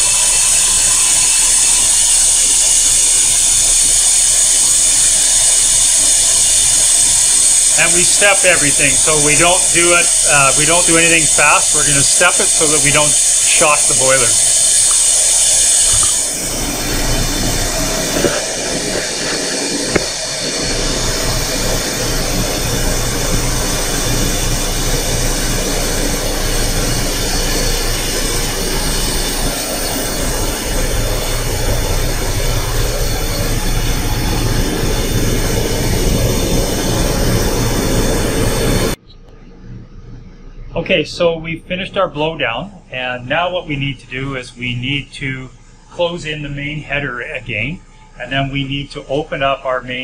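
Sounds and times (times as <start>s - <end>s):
steam rushing through pipes: 0.0s - 39.0s.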